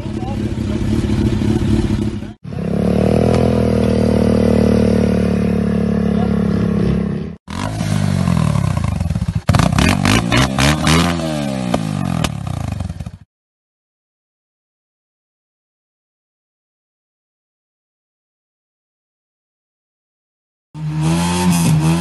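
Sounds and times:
motorcycle engine revving: 0.0s - 13.3s, 20.8s - 22.0s.

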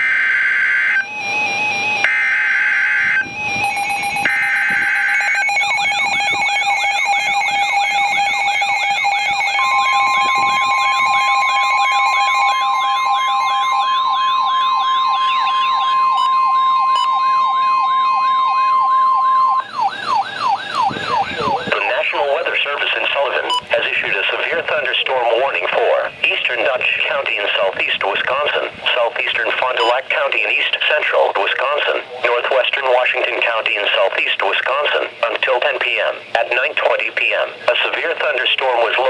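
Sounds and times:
siren wailing in rising sweeps: 0.0s - 22.6s
steady warning tone: 0.0s - 39.0s
data tone bursts: 0.9s - 19.7s.

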